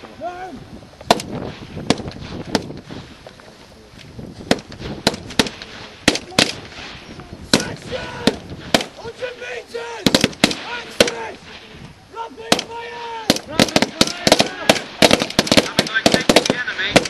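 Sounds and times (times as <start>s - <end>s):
rifle single shots: 1.0s - 3.0s, 4.4s - 9.0s, 10.0s - 11.8s, 12.5s - 17.0s.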